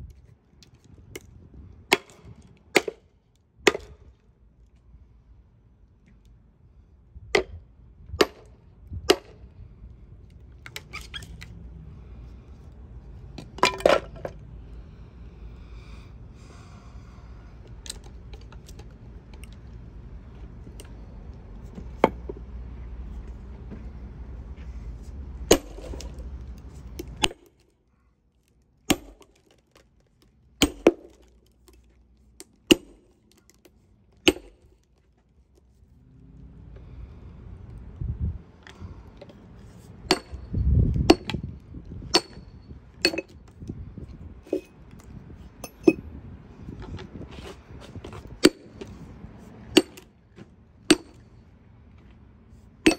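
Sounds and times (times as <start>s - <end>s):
low steady rumble: 0.0s - 52.9s
sledgehammer striking wedges: 1.9s - 3.0s, 3.7s - 4.0s, 8.2s - 9.4s, 25.4s - 26.2s, 27.0s - 27.5s, 28.9s - 29.5s, 30.6s - 31.3s, 32.7s - 33.2s, 34.2s - 34.7s, 40.0s - 43.4s, 45.6s - 46.0s, 48.2s - 49.0s, 49.7s - 50.1s, 50.8s - 51.3s.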